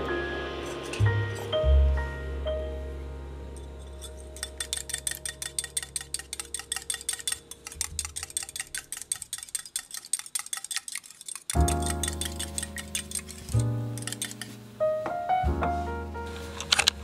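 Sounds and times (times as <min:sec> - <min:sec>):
utensil clicking against bowl: 0:04.0 - 0:14.6.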